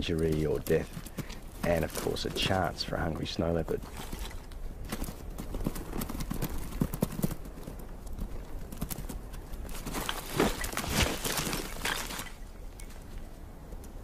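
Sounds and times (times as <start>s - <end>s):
hooves clattering on rock: 0.0s - 14.0s.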